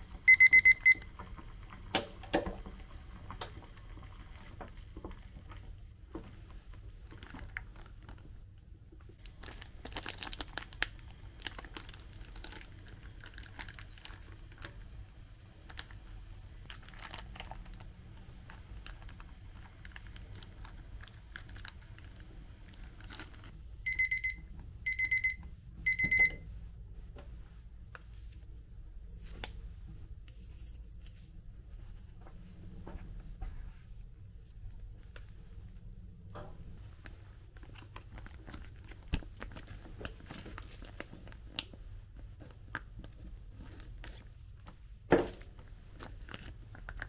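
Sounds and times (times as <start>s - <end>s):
kitchen timer beeps: 0.2s - 1.1s, 23.8s - 26.5s
plastic pouches crinkling and tearing: 9.2s - 14.8s, 15.7s - 16.0s, 16.6s - 23.6s, 37.6s - 41.8s, 45.3s - 47.0s.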